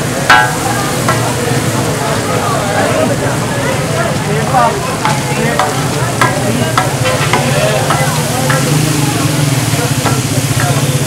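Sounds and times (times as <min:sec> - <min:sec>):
chicken sizzling on a griddle: 0:00.0 - 0:02.8, 0:04.0 - 0:11.0
metal spatula striking griddle: 0:00.3 - 0:01.4, 0:05.0 - 0:11.0.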